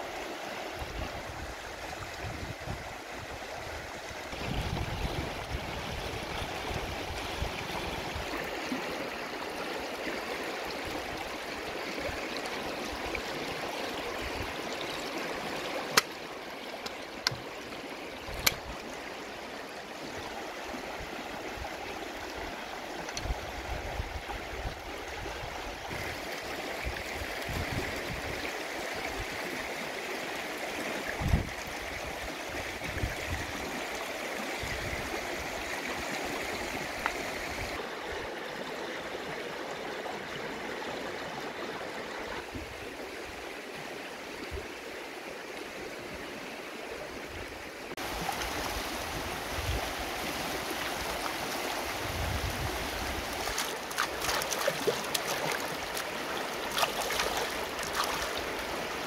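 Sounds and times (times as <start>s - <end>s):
river rushing over rocks: 48.0s - 59.0s.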